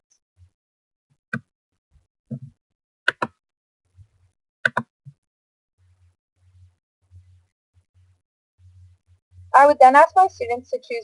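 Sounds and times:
computer mouse clicks: 0:03.1 - 0:03.4, 0:04.6 - 0:04.9.

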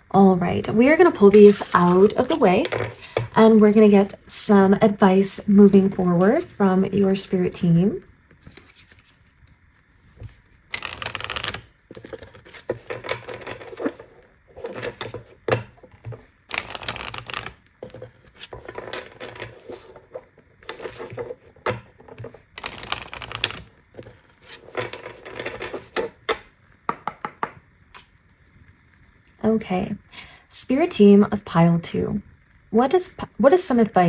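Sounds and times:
cards being shuffled: 0:01.3 - 0:03.3, 0:08.4 - 0:15.4, 0:16.0 - 0:21.5, 0:22.1 - 0:26.2.

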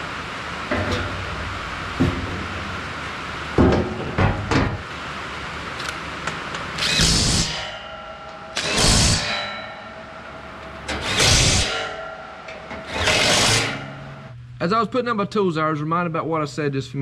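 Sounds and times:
impact driver driving bolts into metal: 0:08.6 - 0:09.3.

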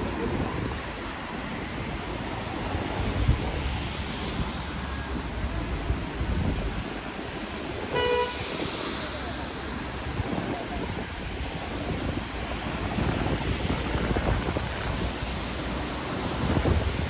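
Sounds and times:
rainy road traffic hiss: 0:00.0 - 0:17.0
vehicles passing: 0:00.0 - 0:17.0.

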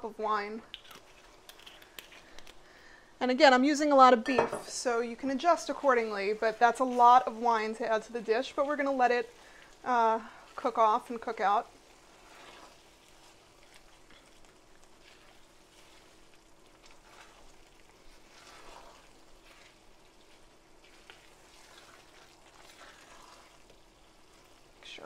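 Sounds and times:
sauce sizzling and bubbling in a pan: 0:04.0 - 0:25.0
spatula scraping a pan: 0:05.2 - 0:24.6.

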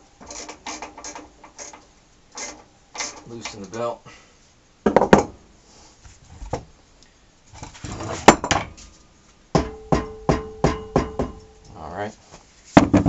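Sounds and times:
ringing metallic knocks: 0:09.5 - 0:11.7.

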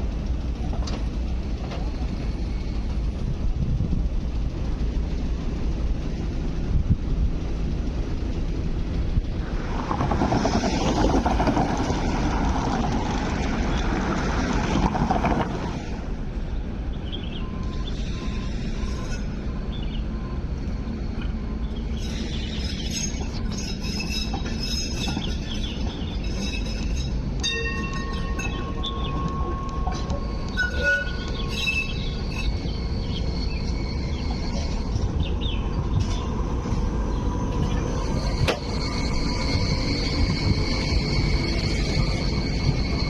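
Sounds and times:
train wheels clicking over rail joints: 0:00.0 - 0:16.1, 0:22.0 - 0:43.0
tram rumble: 0:00.0 - 0:43.0
wheels squealing on curves: 0:37.4 - 0:43.0.

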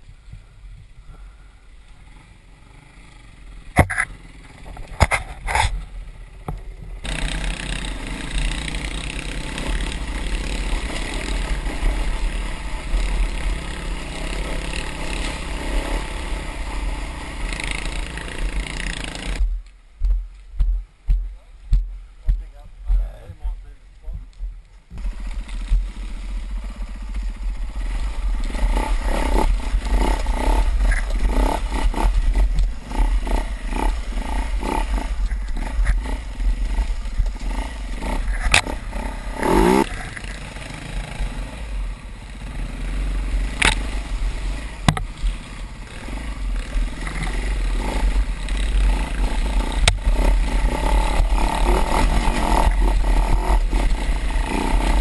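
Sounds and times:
wind rumble on microphone: 0:00.0 - 0:01.4
dirt bike engine revving: 0:02.0 - 0:19.6, 0:24.9 - 0:55.0
sharp knocks of bike on trail: 0:03.7 - 0:11.3, 0:28.3 - 0:40.4, 0:43.5 - 0:44.0, 0:44.8 - 0:45.5, 0:46.9 - 0:55.0.

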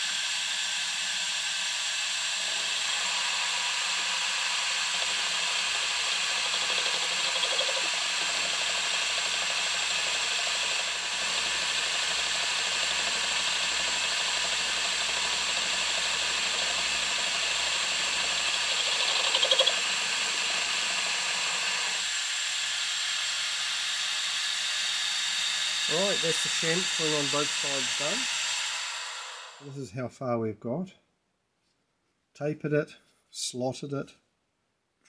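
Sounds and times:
milling machine cutting hiss: 0:00.0 - 0:22.1, 0:24.9 - 0:29.7.

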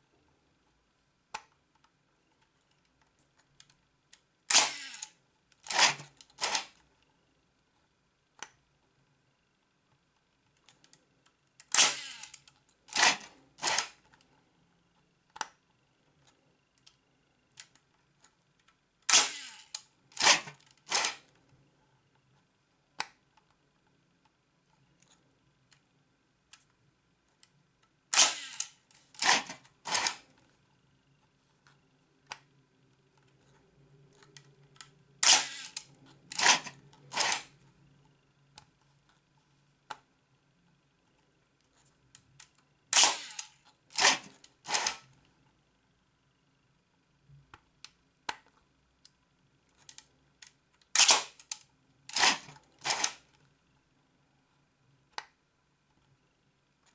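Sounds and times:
camera shutter clacks: 0:04.5 - 0:05.1, 0:05.7 - 0:06.7, 0:28.1 - 0:30.2, 0:51.0 - 0:53.2.

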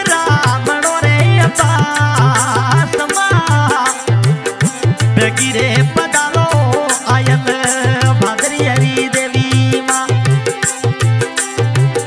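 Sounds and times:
instrumental melody line: 0:00.0 - 0:12.0
steady drum beat: 0:00.0 - 0:12.0.

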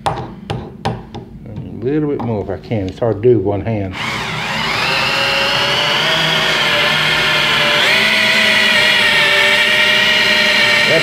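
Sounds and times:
cordless drill motor whining: 0:03.9 - 0:11.0.

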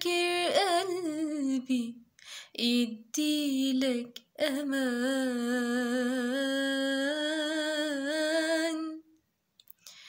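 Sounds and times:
woman singing unaccompanied: 0:00.0 - 0:02.0, 0:02.6 - 0:09.1.

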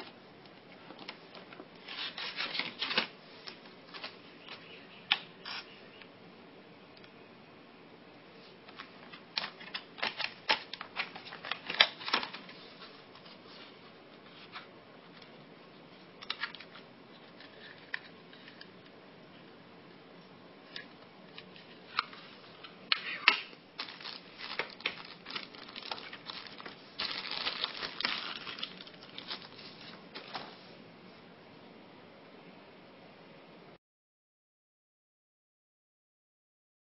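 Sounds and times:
hard plastic clicking and crackling: 0:08.7 - 0:12.5, 0:20.7 - 0:29.6.

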